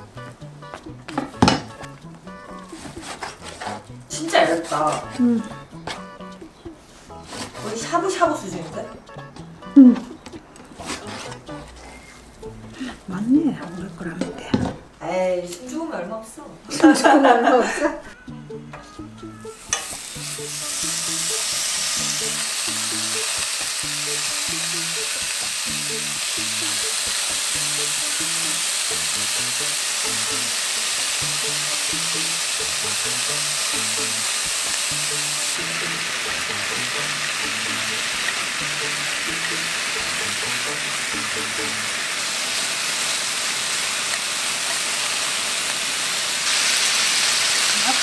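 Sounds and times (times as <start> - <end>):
quiet plucked background tune: 0.0 - 42.2
pork sizzling in a frying pan: 19.4 - 48.0.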